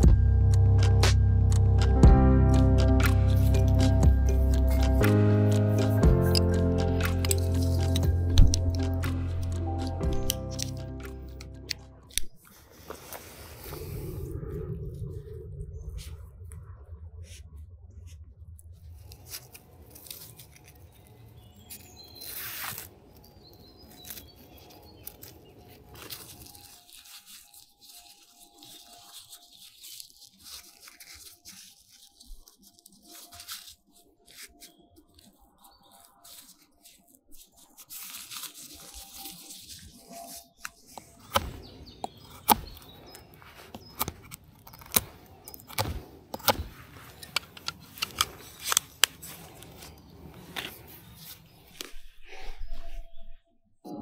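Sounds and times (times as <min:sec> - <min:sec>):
tent fabric rustling: 0:12.1 - 0:14.0, 0:18.9 - 0:53.0.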